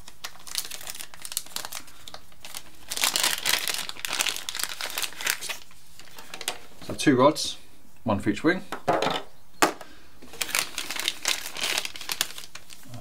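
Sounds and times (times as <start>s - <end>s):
plastic bag crinkling: 0.0s - 6.8s, 10.2s - 13.0s.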